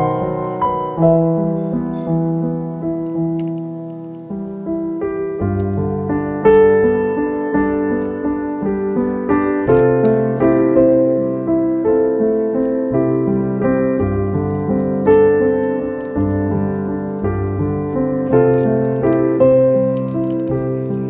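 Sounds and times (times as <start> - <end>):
calm piano music: 0.0 - 21.0.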